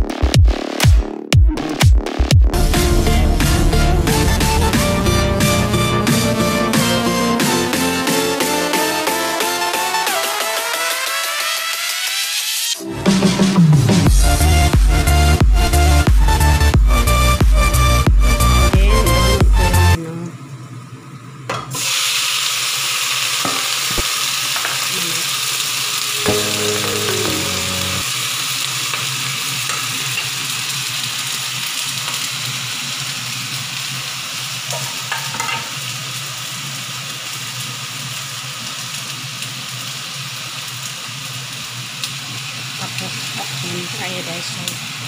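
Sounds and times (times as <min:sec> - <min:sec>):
food sizzling in hot oil: 0:21.7 - 0:45.0.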